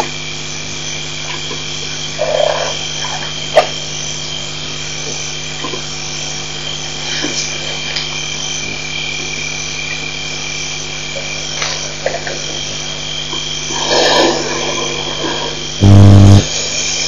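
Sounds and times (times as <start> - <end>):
frogs calling: 0.0 - 15.4
insects calling: 0.0 - 17.0
low steady hum: 15.8 - 16.5.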